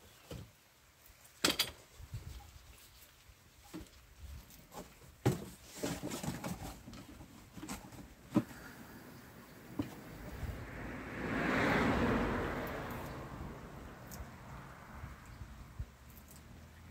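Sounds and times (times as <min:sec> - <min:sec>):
cardboard rustling: 0:04.6 - 0:08.6.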